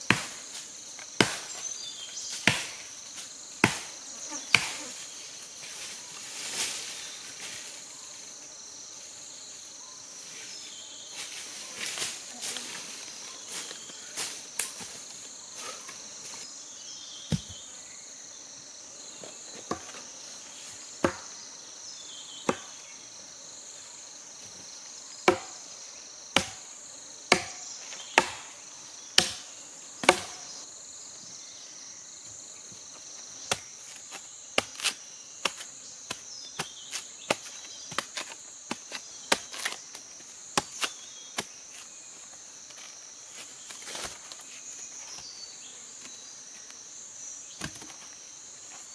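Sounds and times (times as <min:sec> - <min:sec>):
insects buzzing: 0:00.0 - 0:48.9
machete chopping bamboo: 0:00.1 - 0:00.4, 0:01.1 - 0:01.6, 0:02.4 - 0:02.8, 0:03.6 - 0:03.9, 0:04.5 - 0:04.8, 0:25.2 - 0:25.6, 0:26.4 - 0:26.6, 0:27.3 - 0:27.6, 0:28.2 - 0:28.5, 0:29.2 - 0:30.5, 0:33.5 - 0:34.0, 0:34.6 - 0:39.8, 0:40.5 - 0:41.6.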